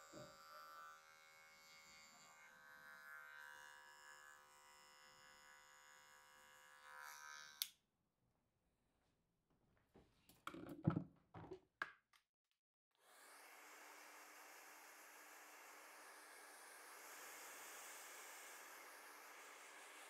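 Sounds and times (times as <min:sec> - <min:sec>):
electric hair clippers buzzing: 0:00.0 - 0:07.8, 0:13.1 - 0:20.0.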